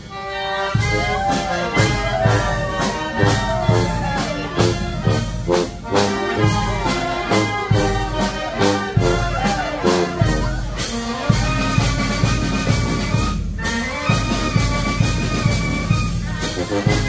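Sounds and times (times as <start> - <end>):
brass band playing dance music: 0.0 - 17.0
steady drum beat: 0.7 - 17.0.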